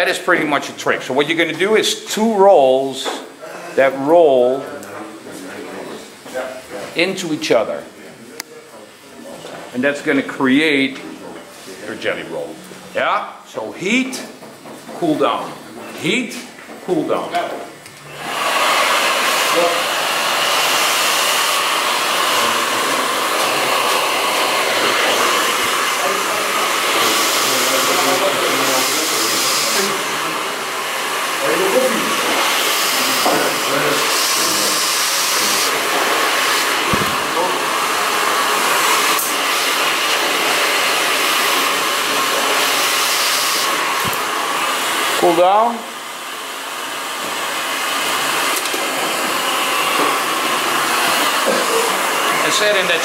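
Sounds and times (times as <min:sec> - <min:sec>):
hair dryer blowing: 0:16.9 - 0:53.0.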